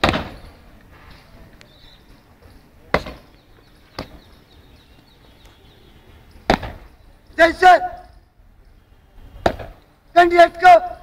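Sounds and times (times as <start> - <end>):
boots stamping on concrete: 0.0 - 0.6, 2.9 - 4.4, 6.3 - 6.9, 9.4 - 9.9.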